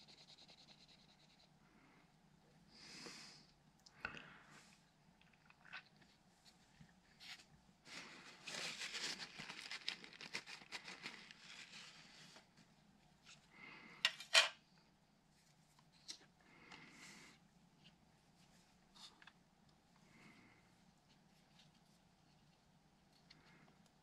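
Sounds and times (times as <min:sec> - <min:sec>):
scratching and rustling on plastic: 0:07.2 - 0:13.4.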